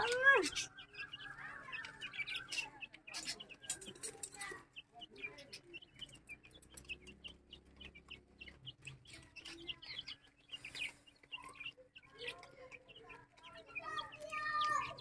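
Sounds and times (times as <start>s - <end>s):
birds chirping: 0.0s - 15.0s
chickens clucking: 0.0s - 15.0s.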